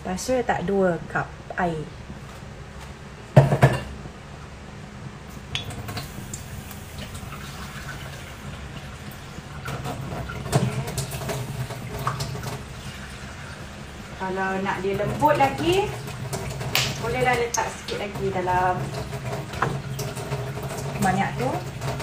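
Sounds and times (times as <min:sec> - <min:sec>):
water running into pot: 0:05.6 - 0:22.0.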